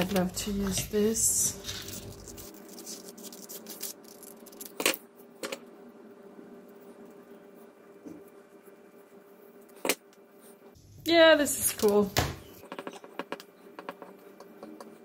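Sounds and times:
paper handling: 0:01.5 - 0:05.0.

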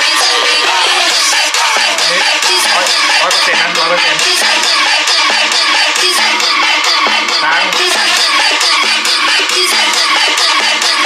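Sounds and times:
music with steady beat: 0:00.0 - 0:11.0.

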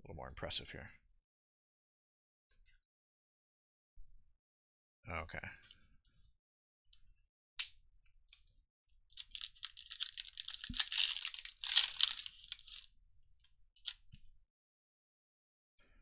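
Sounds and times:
foil wrapper crinkling and tearing: 0:09.2 - 0:12.9.

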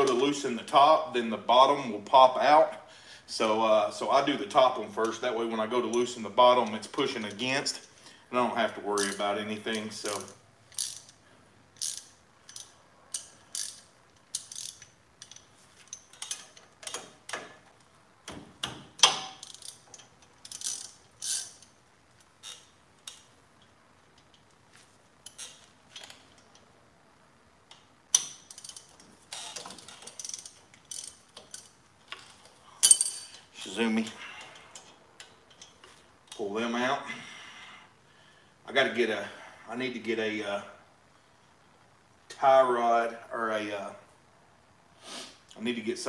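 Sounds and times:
socket ratchet clicking: 0:10.1 - 0:11.2, 0:11.8 - 0:15.4, 0:19.0 - 0:21.7, 0:27.7 - 0:31.7.

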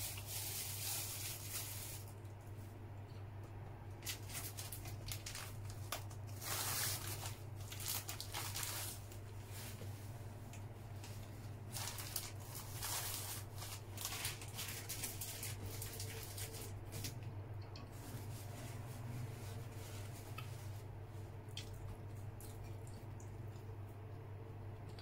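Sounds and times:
person chewing soft bun: 0:20.0 - 0:25.0.

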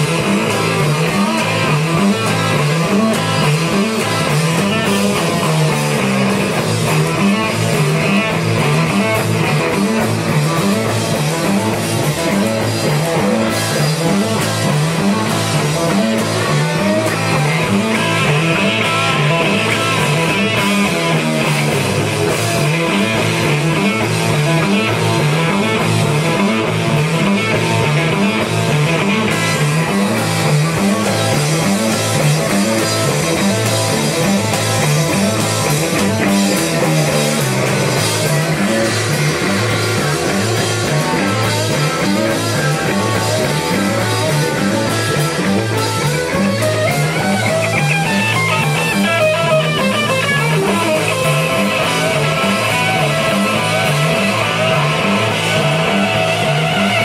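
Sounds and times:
rock band playing: 0:00.0 - 0:57.0.

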